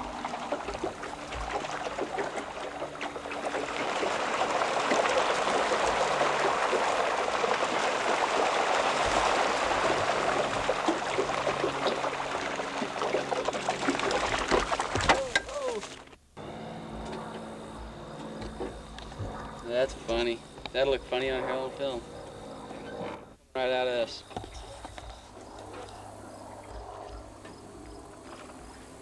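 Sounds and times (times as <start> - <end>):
rushing splashing water: 0.0 - 16.0.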